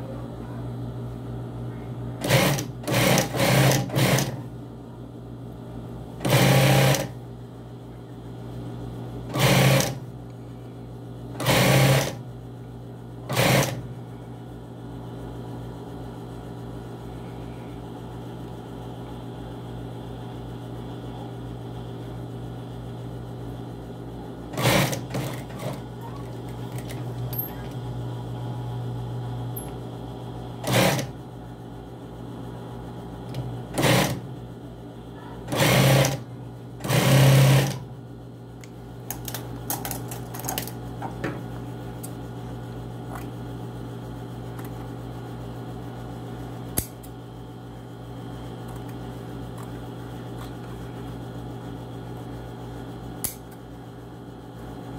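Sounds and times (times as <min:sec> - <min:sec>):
sewing machine motor humming: 0:02.2 - 0:04.4, 0:06.2 - 0:07.2, 0:09.3 - 0:10.0, 0:11.3 - 0:12.2, 0:13.2 - 0:13.9, 0:24.5 - 0:27.9, 0:30.6 - 0:31.2, 0:33.3 - 0:34.4, 0:35.4 - 0:37.9
sewing machine stitching: 0:02.2 - 0:04.4, 0:06.2 - 0:07.1, 0:09.3 - 0:10.0, 0:11.4 - 0:12.2, 0:13.3 - 0:13.8, 0:24.5 - 0:25.8, 0:30.6 - 0:31.1, 0:33.7 - 0:34.2, 0:35.5 - 0:36.2, 0:36.8 - 0:37.8.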